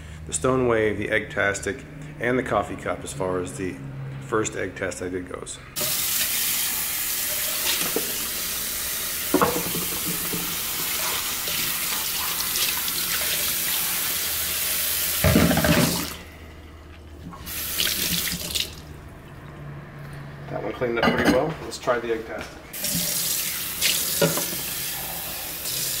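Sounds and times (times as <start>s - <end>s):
tap running into steel sink: 9.3s - 11.0s, 24.1s - 24.7s
sponge scrubbing dish: 9.7s - 14.1s.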